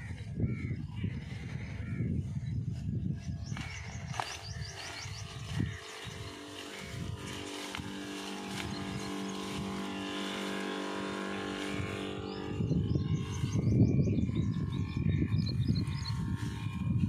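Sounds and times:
electric sprayer pump humming: 0:03.5 - 0:17.0.

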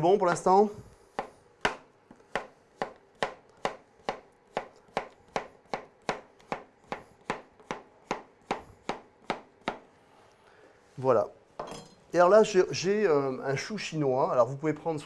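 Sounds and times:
knife chopping on wooden board: 0:01.1 - 0:09.9.

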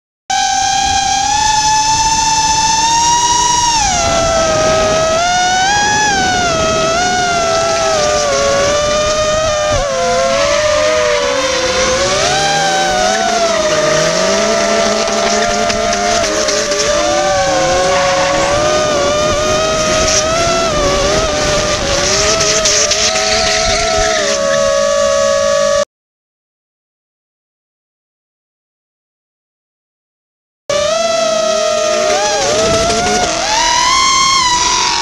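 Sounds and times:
car engines revving: 0:00.3 - 0:25.8, 0:30.7 - 0:35.0
drone motors whining: 0:00.3 - 0:25.8, 0:30.7 - 0:35.0
tyres squealing: 0:01.5 - 0:24.7, 0:31.2 - 0:35.0.

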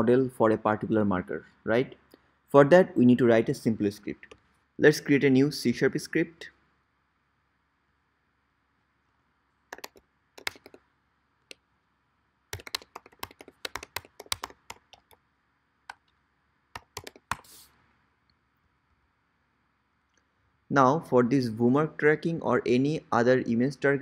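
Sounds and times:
computer keyboard typing: 0:09.7 - 0:10.8, 0:12.5 - 0:15.2, 0:16.8 - 0:17.6.

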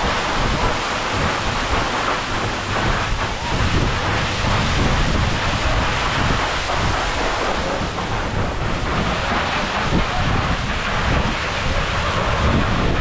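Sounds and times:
creek water rushing over boulders: 0:00.0 - 0:03.9, 0:05.1 - 0:11.8
wind buffeting microphone: 0:00.0 - 0:13.0.

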